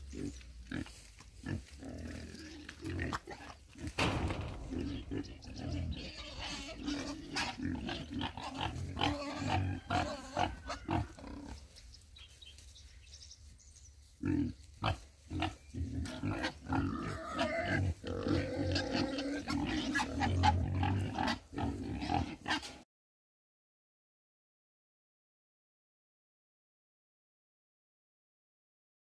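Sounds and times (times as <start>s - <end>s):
pigs grunting: 0.0s - 11.7s, 14.2s - 22.8s.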